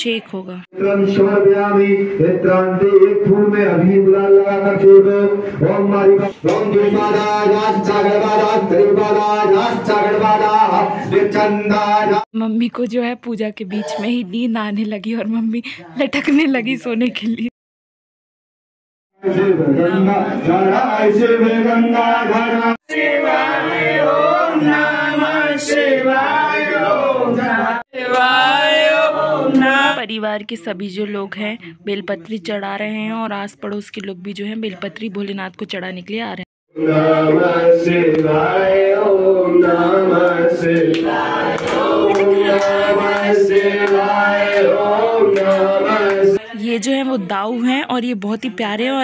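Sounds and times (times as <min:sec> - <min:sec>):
man chanting: 0:00.7 - 0:12.3, 0:19.2 - 0:23.0, 0:36.7 - 0:46.6
group of voices chanting: 0:05.4 - 0:12.3, 0:19.2 - 0:30.0, 0:36.7 - 0:46.5.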